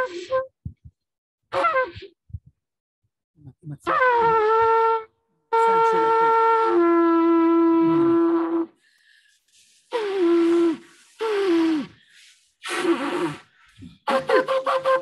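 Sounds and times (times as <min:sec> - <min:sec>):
shofar blasts: 0:03.9 - 0:08.8.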